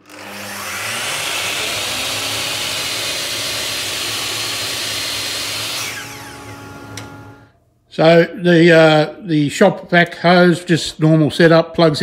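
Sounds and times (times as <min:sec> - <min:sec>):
miter saw motor whining: 0:00.0 - 0:07.5.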